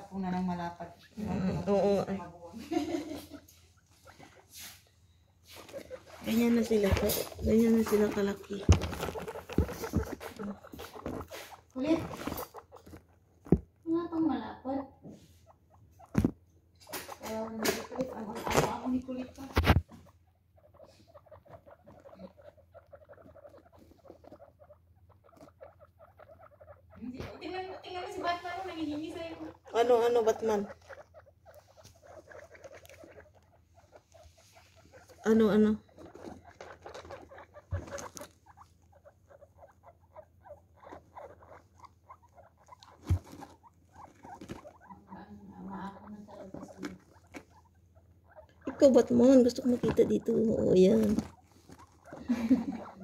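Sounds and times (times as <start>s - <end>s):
rustling in pellet bedding: 1.8s - 14.1s
guinea pigs making quick ticks: 5.4s - 53.0s
dull thumps: 5.7s - 13.9s, 42.5s - 44.9s.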